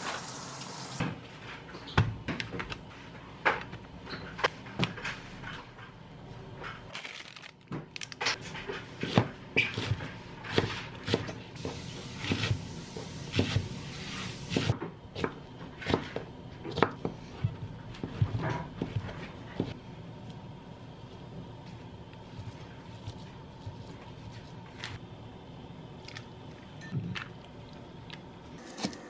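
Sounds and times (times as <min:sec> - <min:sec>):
knife chopping on wooden board: 0:13.3 - 0:13.8, 0:14.4 - 0:17.1.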